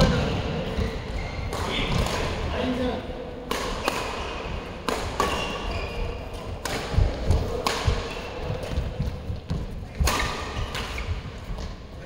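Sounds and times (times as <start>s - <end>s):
racket striking shuttlecock: 3.5s - 11.7s
footsteps thudding on court: 6.9s - 10.0s.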